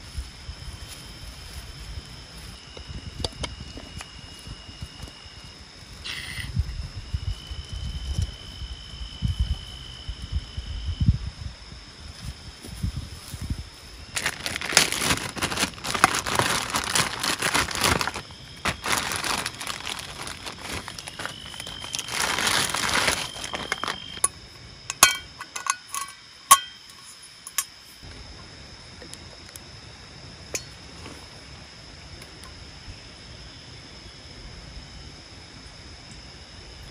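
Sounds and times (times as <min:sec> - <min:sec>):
crinkling and rustling handling: 0:14.1 - 0:24.3
sharp clicks and clinks: 0:23.6 - 0:27.8.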